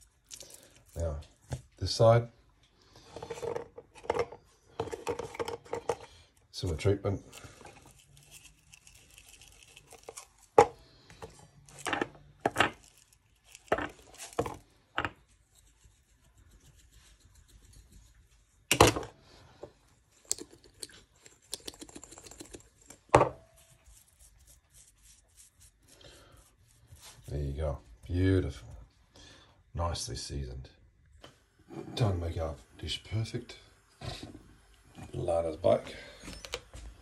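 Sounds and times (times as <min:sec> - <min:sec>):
spice shakers rattling: 0:07.8 - 0:10.5.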